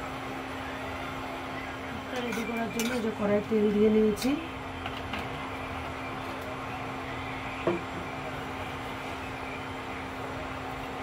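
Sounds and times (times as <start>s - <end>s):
cooling fan running: 0.0s - 11.0s.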